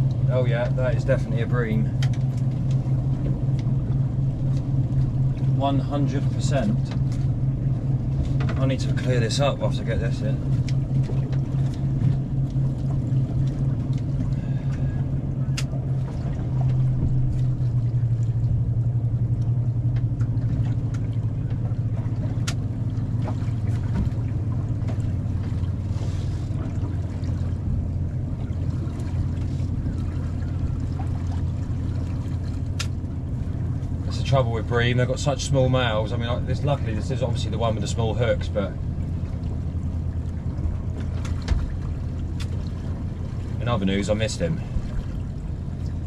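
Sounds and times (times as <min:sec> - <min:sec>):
motorboat engine drone: 0:00.0 - 0:46.0
small clicks and taps: 0:22.4 - 0:22.6.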